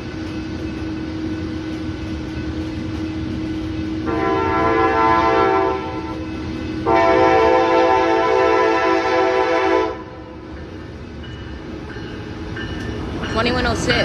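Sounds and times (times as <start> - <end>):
locomotive air horn blasts: 4.1 - 6.2, 6.8 - 10.2.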